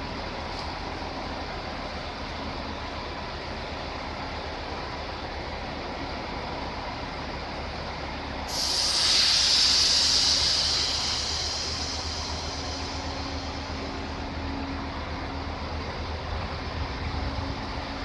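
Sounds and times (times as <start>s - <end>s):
train running hum: 0.0s - 18.0s
air brakes hissing: 8.5s - 14.7s.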